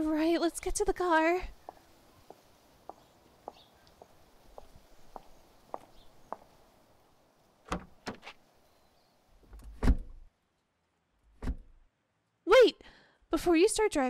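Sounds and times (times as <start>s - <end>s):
light footsteps: 1.4s - 6.8s, 7.7s - 8.4s
car door latch clicks: 7.7s - 8.4s
car door thuds: 7.7s - 8.4s.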